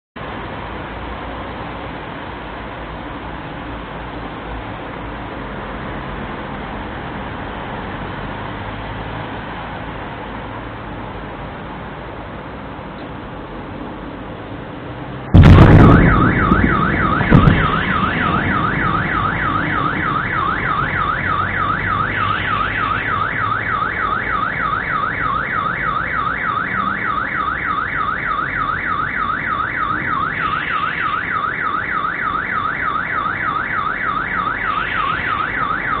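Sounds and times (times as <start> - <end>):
sonic boom bang: 15.3 - 20.1
car alarm warbling: 15.4 - 36.0.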